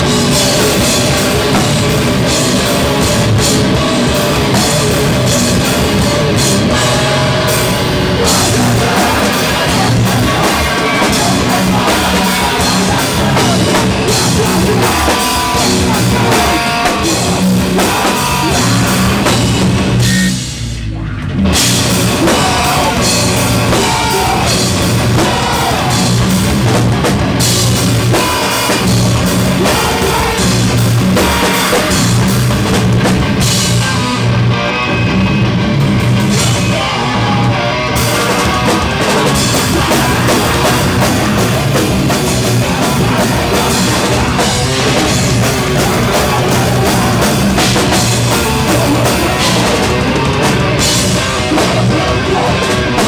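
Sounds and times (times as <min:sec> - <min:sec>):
live heavy rock band: 0:00.0 - 0:53.0.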